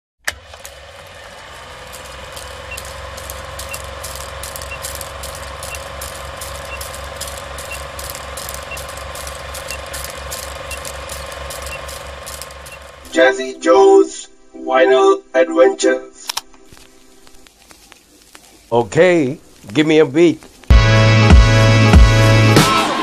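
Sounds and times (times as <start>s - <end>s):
film projector whirring clatter: 0.2s - 13.2s
film crackle: 0.3s - 13.1s, 16.3s - 20.8s
steady hum: 1.0s - 22.5s
short high beeps: 4.6s - 9.0s, 9.6s - 10.0s.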